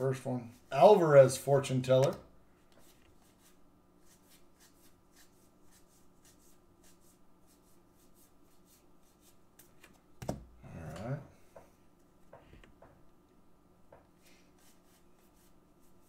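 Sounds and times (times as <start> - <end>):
steady low hum: 0.0 - 16.0
brief voice-like sound: 10.6 - 11.3.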